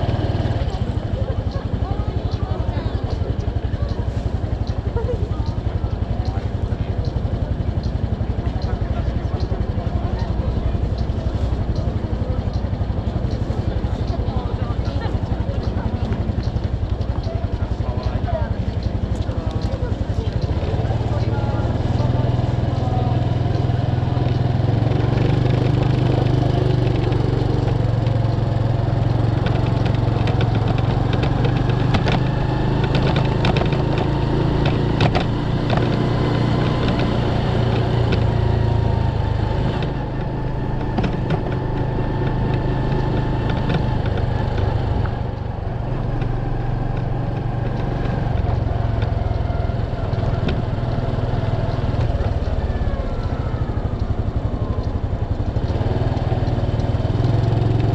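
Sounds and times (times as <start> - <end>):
motorcycle engine running: 0.0 - 57.9
road noise: 0.0 - 57.9.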